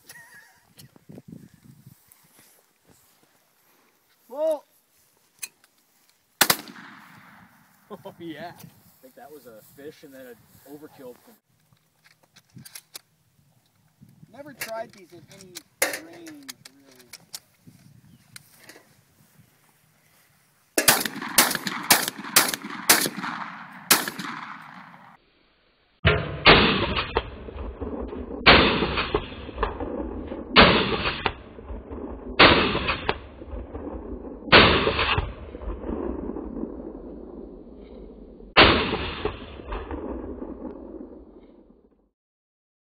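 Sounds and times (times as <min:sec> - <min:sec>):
shotgun shots echoing: 0:06.4 - 0:07.6, 0:20.8 - 0:25.2, 0:26.1 - 0:37.5, 0:38.6 - 0:41.3.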